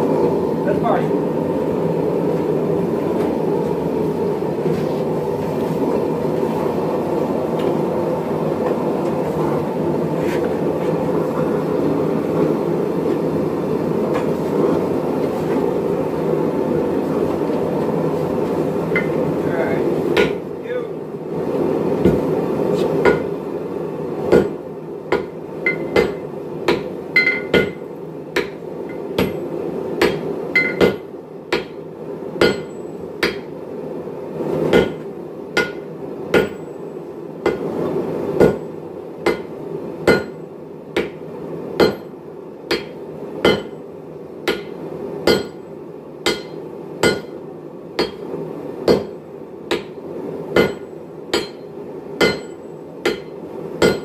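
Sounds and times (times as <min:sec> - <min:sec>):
sledgehammers striking metal on anvil: 0:25.2 - 0:28.6, 0:30.0 - 0:31.8, 0:32.4 - 0:33.5, 0:35.6 - 0:36.8, 0:38.4 - 0:38.7, 0:39.3 - 0:40.4, 0:41.8 - 0:42.1, 0:42.7 - 0:43.8, 0:44.5 - 0:45.6, 0:46.3 - 0:47.4, 0:48.0 - 0:48.3, 0:48.9 - 0:50.0, 0:50.6 - 0:54.0.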